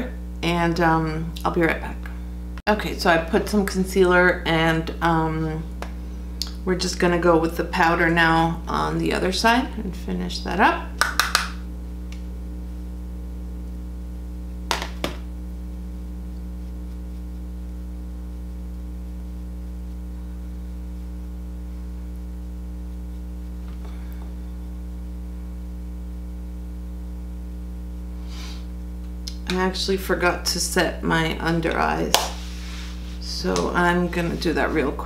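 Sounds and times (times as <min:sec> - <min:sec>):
low room hum: 0:00.0 - 0:35.0.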